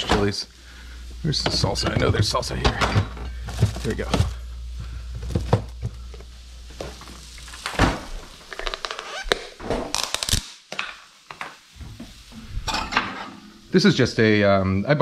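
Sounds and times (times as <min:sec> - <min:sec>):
refrigerator low hum: 0:00.0 - 0:08.8.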